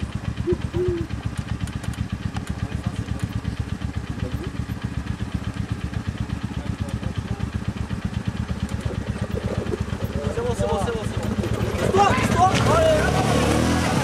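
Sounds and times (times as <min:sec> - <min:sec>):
quad bike engine running: 0:00.0 - 0:14.0.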